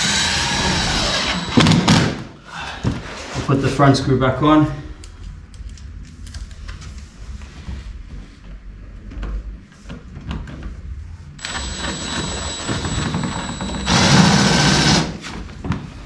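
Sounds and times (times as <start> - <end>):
cordless drill whining: 0.0 - 1.9, 11.4 - 15.2.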